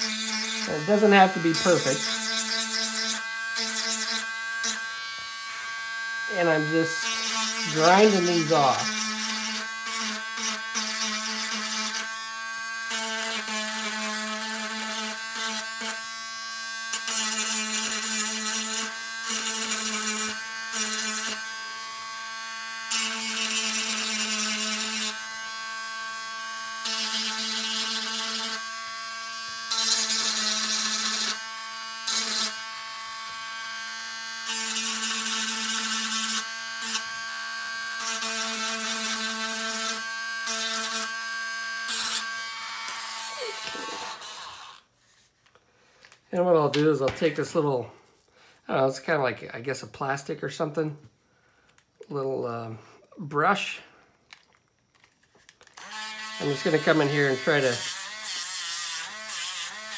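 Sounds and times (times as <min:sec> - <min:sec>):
rotary tool whining: 0:00.0 - 0:16.1, 0:16.9 - 0:46.2, 0:54.3 - 0:59.9
gritty grinding hiss: 0:00.4 - 0:03.1, 0:51.5 - 0:59.6.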